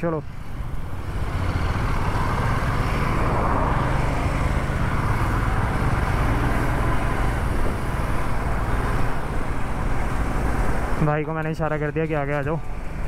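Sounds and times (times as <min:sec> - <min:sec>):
passing traffic rushing: 0:00.0 - 0:13.0
motorcycle engine: 0:00.4 - 0:11.0
wind noise: 0:00.6 - 0:11.0.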